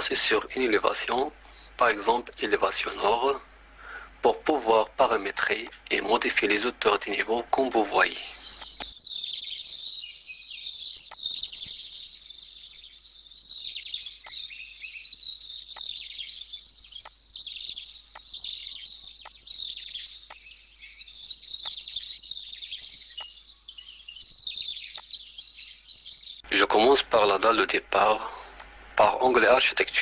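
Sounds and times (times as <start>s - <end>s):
small birds chirping: 0.0s - 30.0s
computer mouse clicks: 8.6s - 8.9s, 11.1s - 11.3s.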